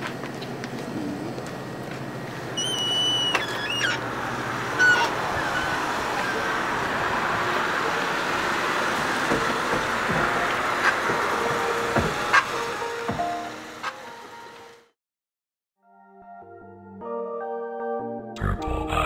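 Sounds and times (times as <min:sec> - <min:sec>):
traffic noise: 0:03.3 - 0:14.8.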